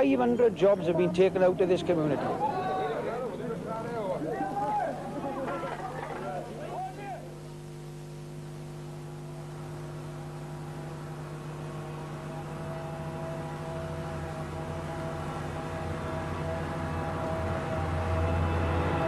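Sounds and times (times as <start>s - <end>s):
low droning music hum: 7.3s - 19.0s.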